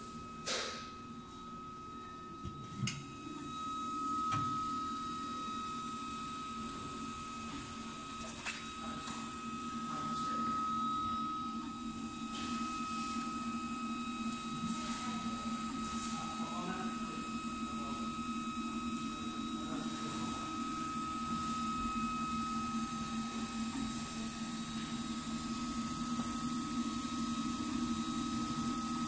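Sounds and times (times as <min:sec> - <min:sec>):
high whine: 0:00.0 - 0:29.0
printer fans and motors humming: 0:00.0 - 0:29.0.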